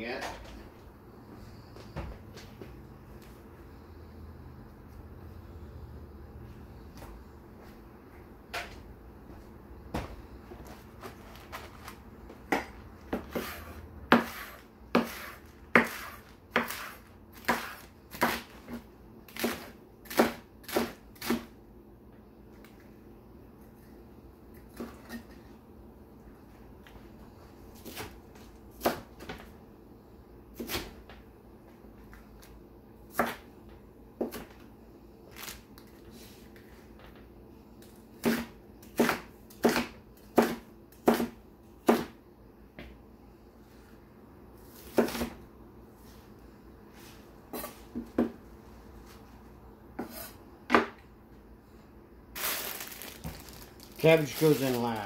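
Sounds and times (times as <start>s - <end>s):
cleaver chopping cabbage: 11.0s - 21.6s, 33.1s - 33.5s, 38.2s - 42.2s, 44.6s - 45.4s.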